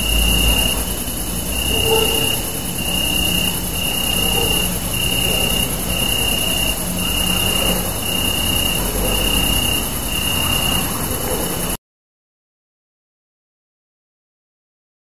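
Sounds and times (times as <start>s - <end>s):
crickets chirping: 0.0s - 11.8s.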